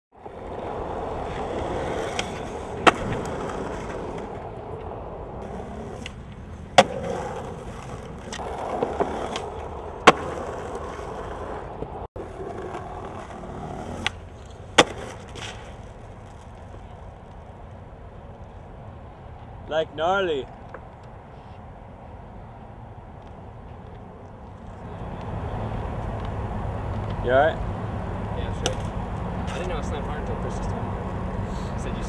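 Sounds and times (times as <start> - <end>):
skateboard wheels rolling on asphalt: 0.1 - 32.0
skateboard clacking on ground: 0.2 - 17.4, 28.4 - 30.0.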